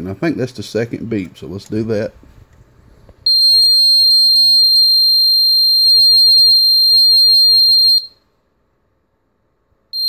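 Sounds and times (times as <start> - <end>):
buzzer long high-pitched beep: 3.3 - 8.1.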